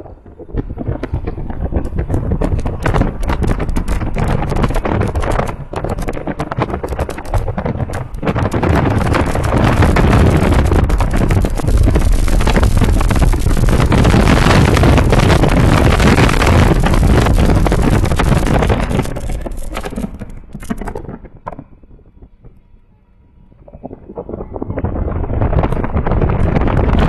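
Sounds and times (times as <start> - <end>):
wind buffeting microphone: 0.0 - 27.0
car road noise: 1.3 - 21.0.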